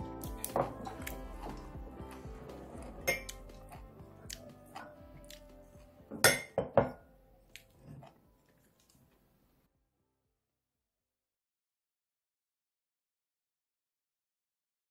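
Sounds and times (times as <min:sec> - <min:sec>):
soft background music: 0:00.0 - 0:09.7
spoon and chopsticks clinking on bowl: 0:03.1 - 0:03.4.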